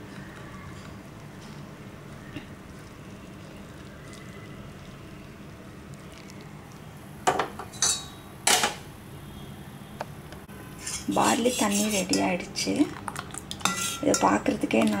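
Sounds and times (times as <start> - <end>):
liquid poured through a strainer: 2.6 - 6.9
metal utensils clinking: 7.6 - 8.8, 13.6 - 15.0.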